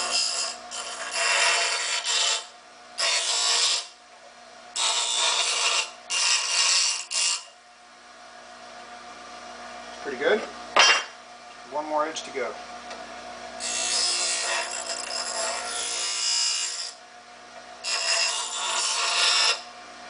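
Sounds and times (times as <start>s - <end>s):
bench grinder motor humming: 13.5s - 17.0s, 17.8s - 19.7s.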